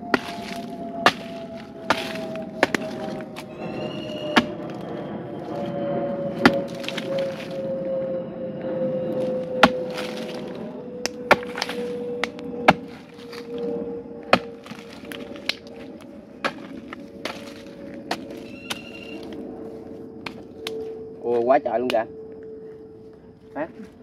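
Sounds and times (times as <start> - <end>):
digging tool striking hard earth: 0.0 - 4.8, 6.4 - 7.6, 9.6 - 13.5, 14.3 - 19.0
crumbling soil: 0.0 - 5.7, 6.4 - 7.6, 9.2 - 10.7, 11.3 - 13.7, 14.3 - 20.8
steady hum: 0.0 - 24.0.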